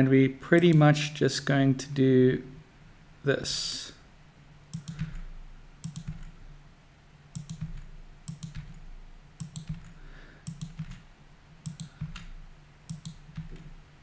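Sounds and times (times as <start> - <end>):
computer keyboard key presses: 4.7 - 5.2, 5.8 - 6.4, 7.4 - 8.8, 9.4 - 11.0, 11.6 - 13.7.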